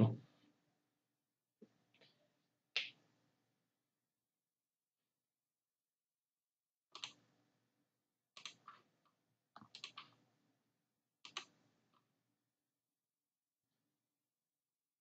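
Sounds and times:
computer mouse clicks: 6.9 - 7.2, 8.4 - 8.9, 9.6 - 10.2, 11.2 - 11.6.

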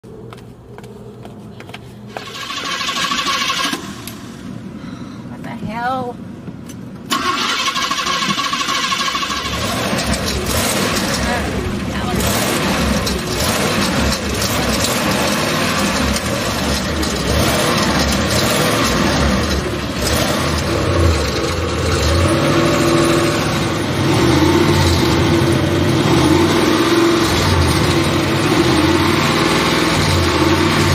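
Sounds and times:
engine knocking: 2.1 - 3.9, 7.2 - 25.3
car engine running: 6.4 - 30.9.

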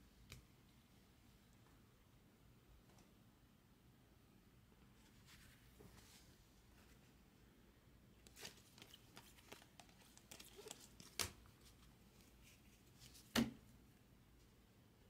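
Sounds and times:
cards sliding and flicking: 8.2 - 11.8.

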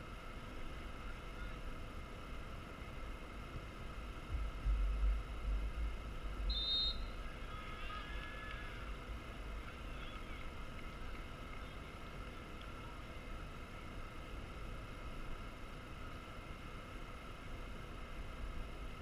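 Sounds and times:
whistle blast: 6.5 - 7.2
distant shouts: 6.5 - 13.1.

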